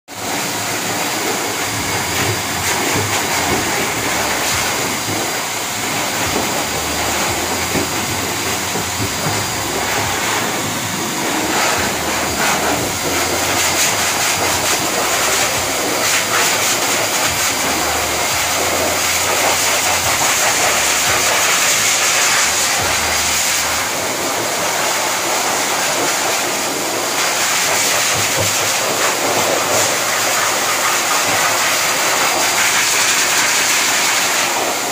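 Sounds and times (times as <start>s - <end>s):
pet dryer blowing air: 0.1s - 34.9s
high motor whine: 0.9s - 24.2s.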